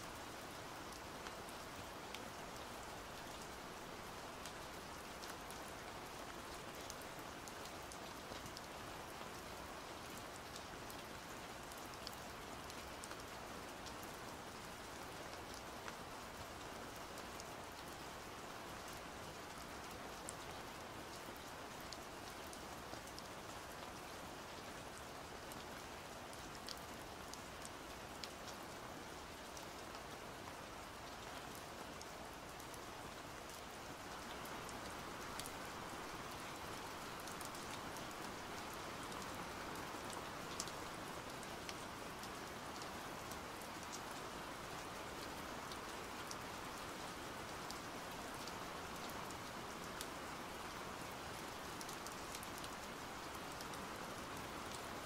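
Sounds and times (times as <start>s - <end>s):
steady rain falling: 0.0s - 55.0s.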